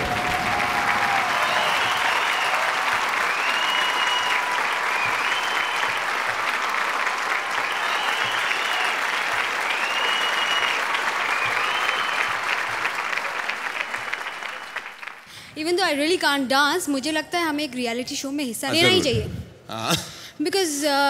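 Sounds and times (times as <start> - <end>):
large audience applauding: 0.0 - 15.3.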